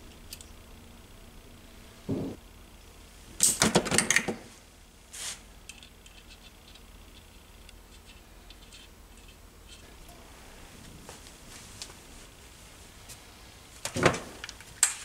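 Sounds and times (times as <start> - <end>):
thump: 2.1 - 2.4.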